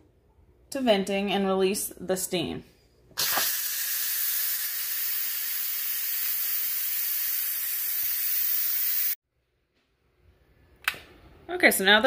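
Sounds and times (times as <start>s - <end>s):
steam hissing from valve: 3.2s - 9.2s.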